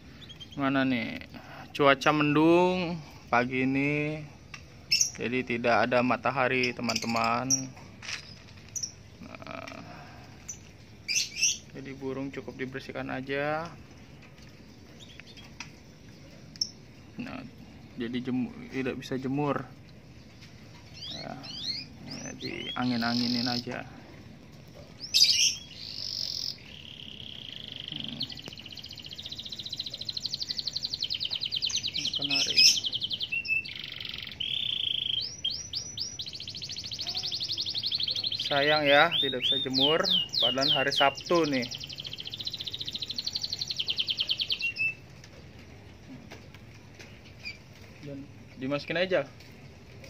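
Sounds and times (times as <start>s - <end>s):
canary singing: 0.0s - 19.5s, 20.2s - 46.0s, 47.0s - 48.0s
faint chirps: 25.0s - 45.0s.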